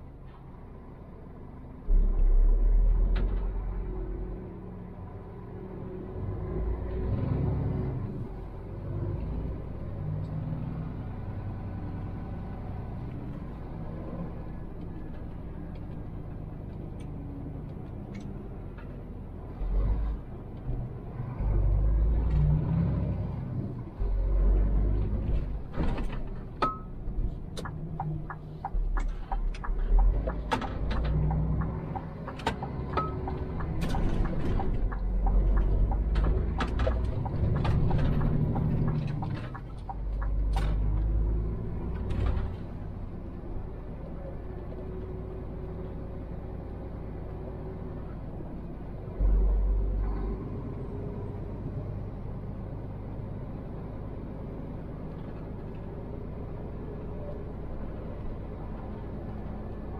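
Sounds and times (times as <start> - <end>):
truck engine and road rumble: 0.0 - 59.9
sharp clicks and knocks: 25.4 - 41.2.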